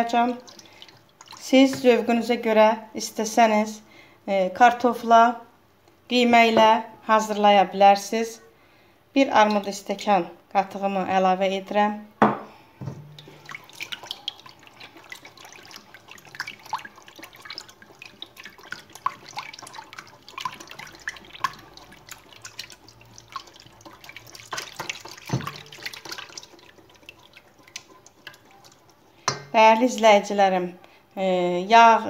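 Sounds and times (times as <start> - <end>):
whisk beating liquid in bowl: 0.1 - 2.0, 13.2 - 30.3.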